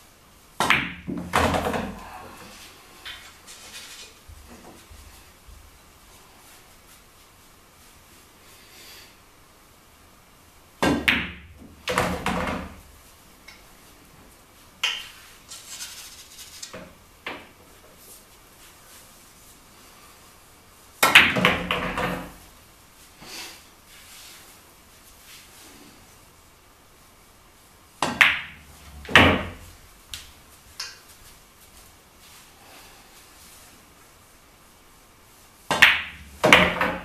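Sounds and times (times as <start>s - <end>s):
pool balls clacking: 0.6s - 2.1s, 10.8s - 12.9s, 21.0s - 22.4s, 28.0s - 31.0s, 35.7s - 37.0s
cue striking ball: 28.0s - 29.6s, 35.7s - 37.0s.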